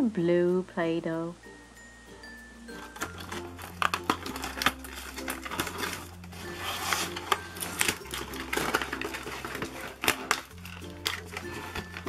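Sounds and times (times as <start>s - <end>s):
background music: 0.0s - 12.0s
plastic packaging crinkling: 2.7s - 12.0s.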